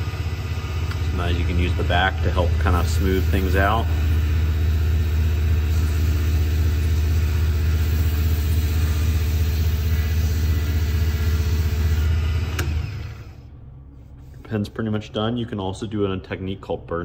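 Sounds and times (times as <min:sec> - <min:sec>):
lathe motor humming: 0:00.0 - 0:13.4
sandpaper hissing on wood: 0:05.6 - 0:12.1.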